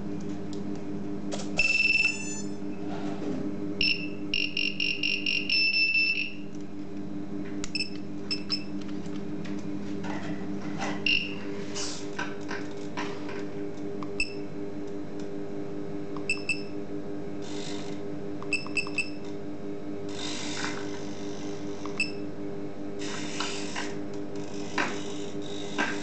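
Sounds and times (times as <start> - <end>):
electrical hum: 0.0 - 26.0
high electronic beeps: 1.6 - 2.5, 3.8 - 6.4.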